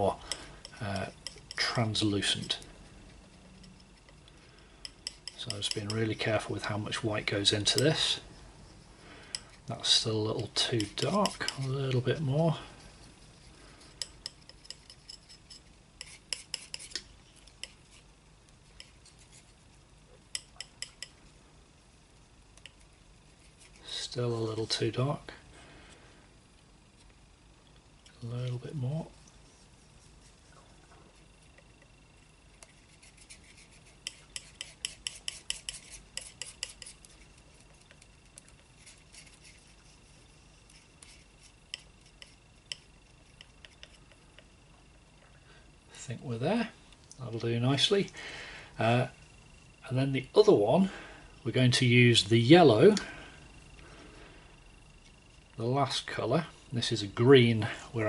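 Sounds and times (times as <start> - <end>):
palette knife clicks and scrapes: 14.0 - 17.8.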